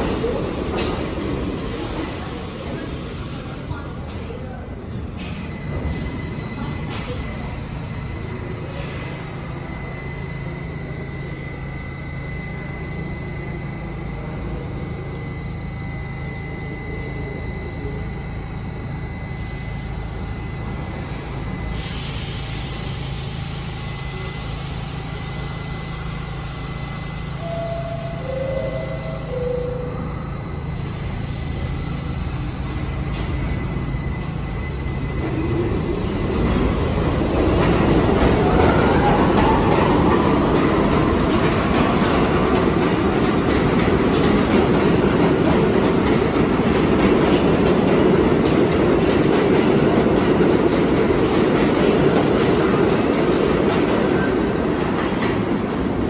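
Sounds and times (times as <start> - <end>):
hiss: 21.7 - 23.7
short tones: 26.8 - 35.7.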